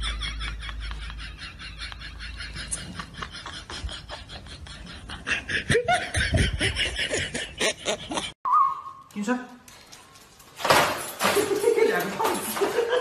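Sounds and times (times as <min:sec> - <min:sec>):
people laughing: 0:00.0 - 0:08.4, 0:11.3 - 0:13.0.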